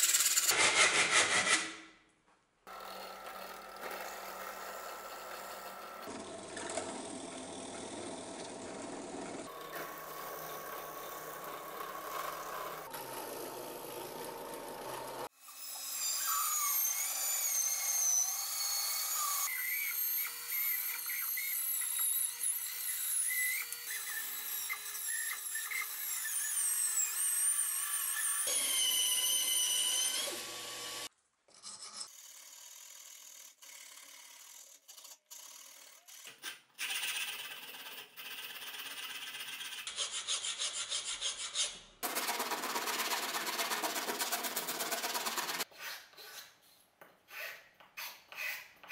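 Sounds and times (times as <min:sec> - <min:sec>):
band saw cutting wood: 0:00.0 - 0:01.8, 0:02.7 - 0:31.1, 0:34.6 - 0:46.6
drill press boring wood: 0:02.7 - 0:15.3, 0:27.9 - 0:31.1.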